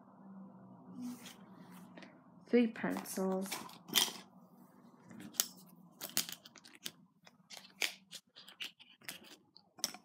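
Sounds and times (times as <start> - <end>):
pens and pencils clattering: 2.9 - 4.3, 5.1 - 10.0.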